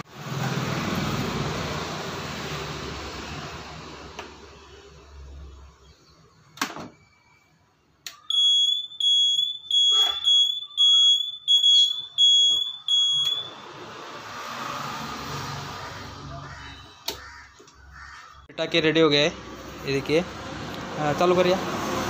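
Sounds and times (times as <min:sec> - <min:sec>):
flasher buzzer beeping: 0:08.2 - 0:13.8.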